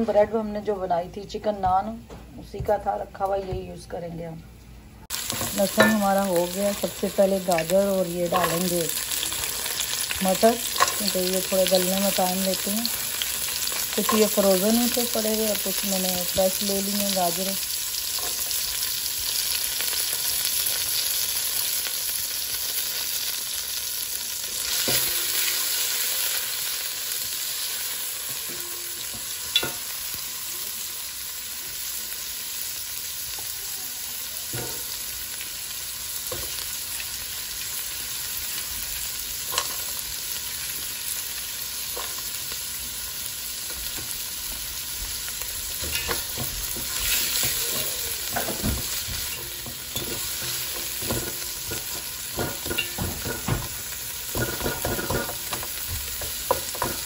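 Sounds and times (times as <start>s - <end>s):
vegetables sizzling in hot oil: 5.0s - 57.0s
spatula scraping and tapping pan: 45.8s - 57.0s.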